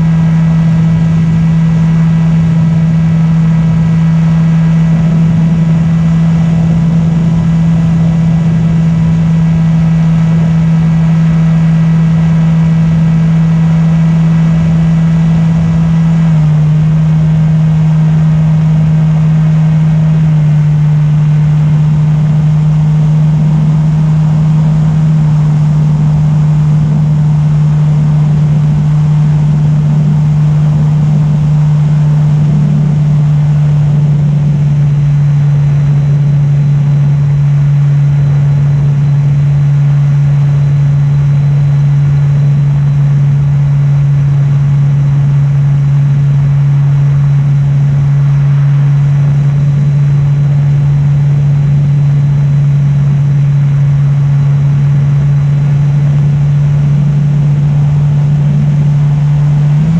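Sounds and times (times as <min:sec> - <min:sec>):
electric motor and propeller humming: 0:00.0 - 0:37.8.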